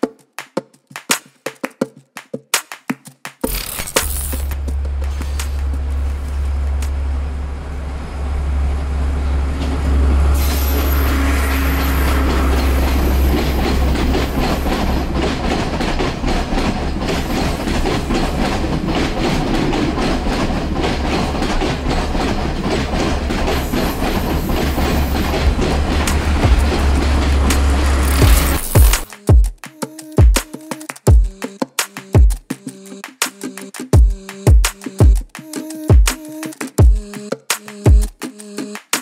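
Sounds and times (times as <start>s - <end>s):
diesel train rumbling past: 4.6s - 29.0s
train wheels clattering: 9.6s - 29.2s.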